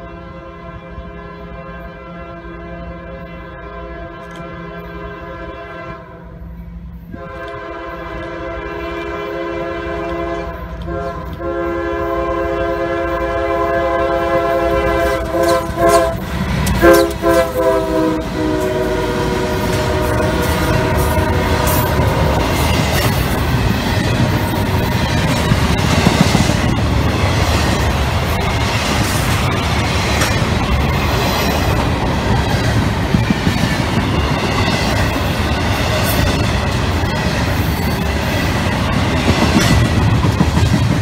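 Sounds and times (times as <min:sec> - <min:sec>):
locomotive air horn blasts: 0:00.0 - 0:22.8
freight cars clattering over rails: 0:19.5 - 0:41.0.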